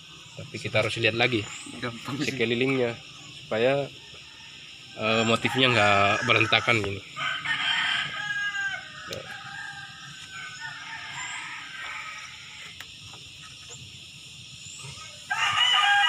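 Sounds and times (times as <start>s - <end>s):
rooster crowing: 3.9s - 12.9s, 14.9s - 16.0s.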